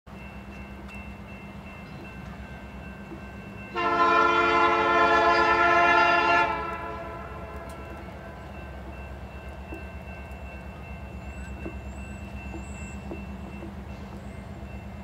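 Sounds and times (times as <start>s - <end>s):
train rumbling: 0.1s - 15.0s
locomotive air horn blast: 3.7s - 7.8s.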